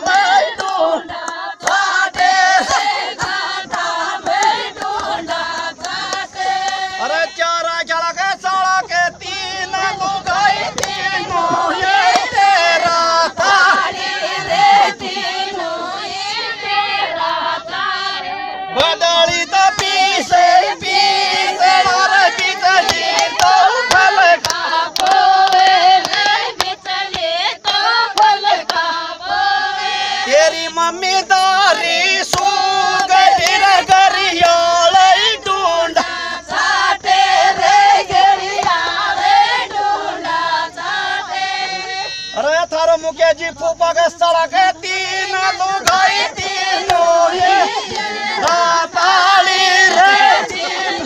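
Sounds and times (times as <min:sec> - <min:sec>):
women singing folk song: 0:00.0 - 0:42.8, 0:43.4 - 0:51.0.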